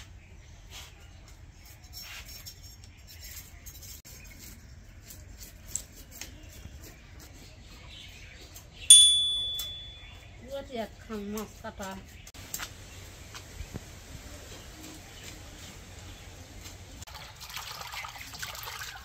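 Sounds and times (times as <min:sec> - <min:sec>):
metal utensil clang: 0:08.9 - 0:10.1.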